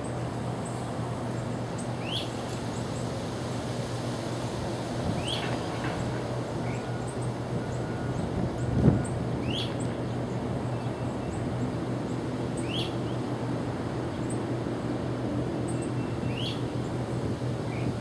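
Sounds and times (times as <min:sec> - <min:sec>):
diesel locomotive idling: 0:05.4 - 0:17.6.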